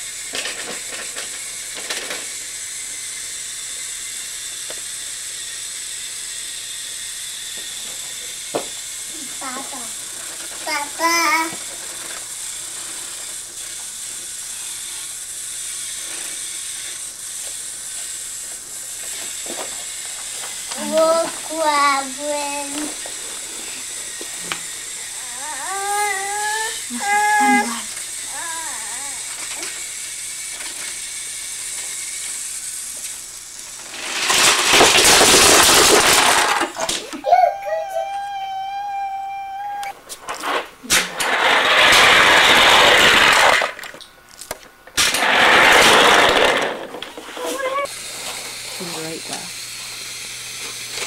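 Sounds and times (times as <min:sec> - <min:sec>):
toy train motor whirring: 0:00.0 - 0:51.0
loud rattling clatter: 0:33.8 - 0:37.0, 0:40.5 - 0:43.9, 0:45.0 - 0:47.2.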